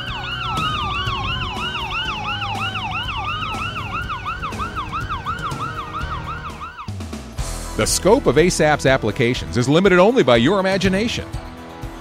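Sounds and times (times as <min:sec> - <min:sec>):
siren fast yelp: 0:00.0 - 0:07.0
siren slow wail: 0:00.0 - 0:07.0
low rumble: 0:00.1 - 0:08.8.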